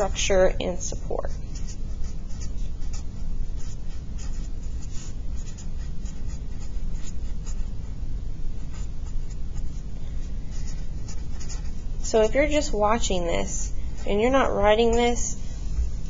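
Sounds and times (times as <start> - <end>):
steady low rumble: 0.0 - 16.0
pen scratching on paper: 1.0 - 8.0, 8.6 - 15.3.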